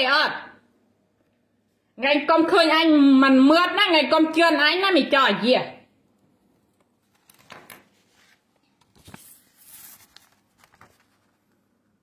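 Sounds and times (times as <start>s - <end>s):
paper rustling: 6.8s - 11.8s.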